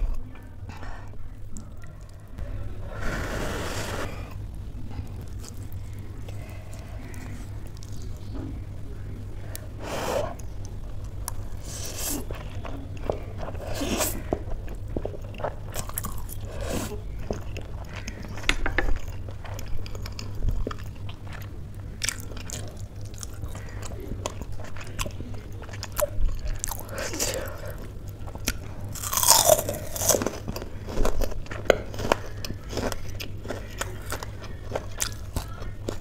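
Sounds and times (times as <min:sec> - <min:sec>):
chewing with mouth smacks: 0:10.3 - 0:36.0.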